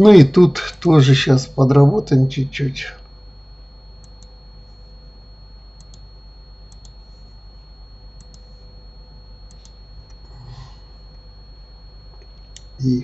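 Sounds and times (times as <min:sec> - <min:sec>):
faint steady hum: 0:00.0 - 0:13.0
thin high whine: 0:00.0 - 0:13.0
computer mouse clicking: 0:04.0 - 0:04.3, 0:05.8 - 0:06.0, 0:06.7 - 0:07.0, 0:08.2 - 0:08.5, 0:09.5 - 0:10.2.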